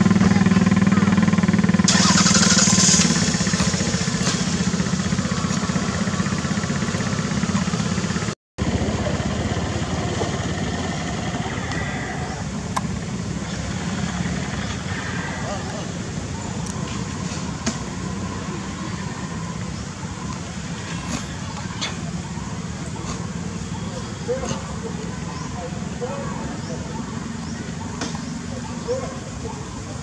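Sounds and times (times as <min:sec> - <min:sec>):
small engine running: 0:00.0 - 0:15.7.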